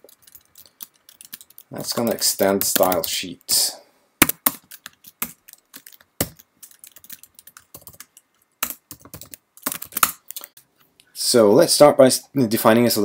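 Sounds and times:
keyboard typing: 0.0 - 3.2, 4.2 - 10.6.

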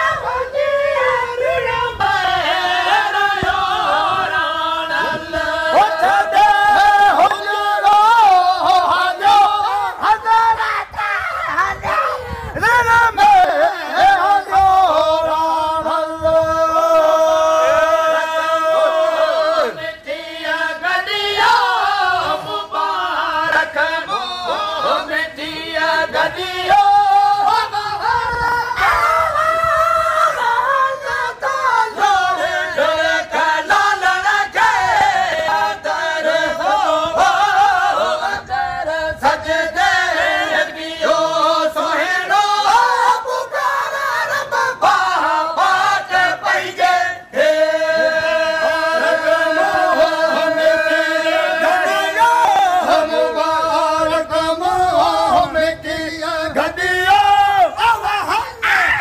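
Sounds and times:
men singing devotional song: 0.0 - 59.0.

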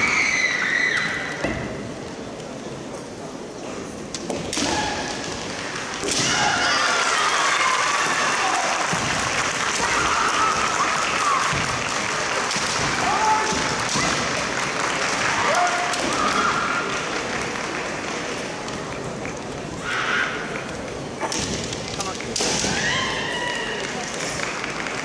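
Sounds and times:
audience applauding: 6.7 - 16.0, 16.6 - 19.4, 23.4 - 25.0.

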